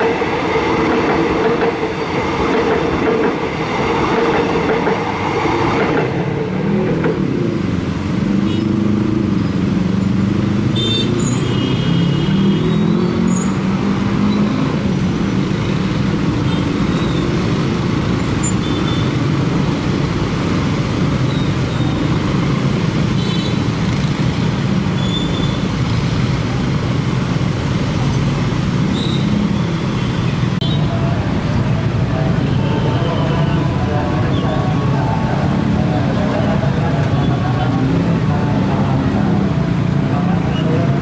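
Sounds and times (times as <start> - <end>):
car and truck engines: 6.0 - 41.0
motorcycle engines idling and pulling away: 6.7 - 30.1.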